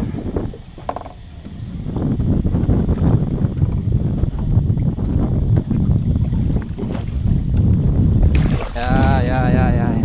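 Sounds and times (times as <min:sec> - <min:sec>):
wind buffeting microphone: 0:00.0 - 0:10.0
water splashing and churning: 0:03.6 - 0:09.8.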